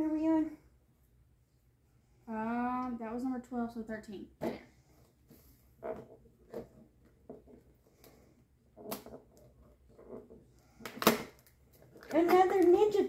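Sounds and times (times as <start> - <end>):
cardboard and plastic rustling: 10.9 - 13.0.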